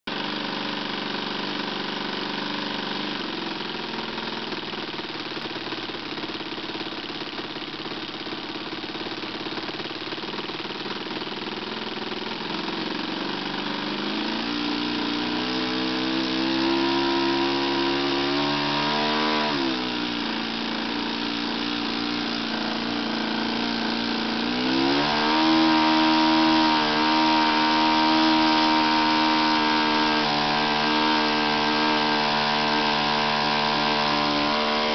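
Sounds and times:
model airplane engine running: 0.1 - 34.9.

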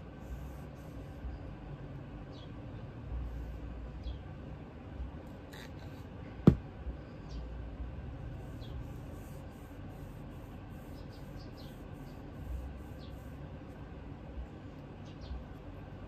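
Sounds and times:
knock on work table: 6.4 - 6.6.

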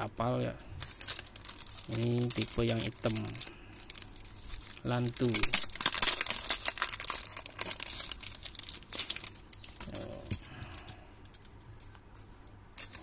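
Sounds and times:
plastic film crinkling and tearing: 0.8 - 10.8, 12.8 - 13.0.

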